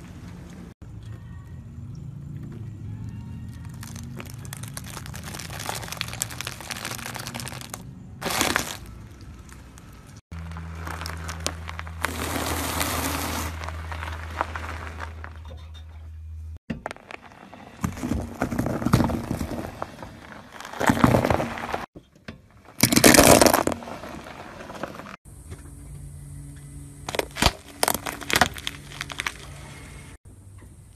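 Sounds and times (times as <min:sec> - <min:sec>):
tyre crunching objects: 0:03.4 - 0:15.4, 0:16.7 - 0:21.9, 0:22.5 - 0:25.2, 0:27.0 - 0:30.2.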